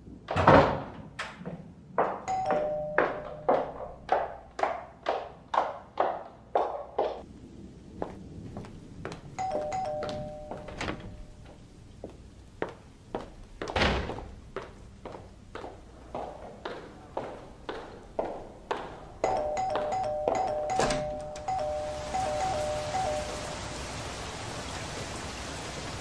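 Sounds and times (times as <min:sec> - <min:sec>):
doorbell two-note chime: 0:02.3 - 0:03.6, 0:09.4 - 0:11.3, 0:19.2 - 0:23.9.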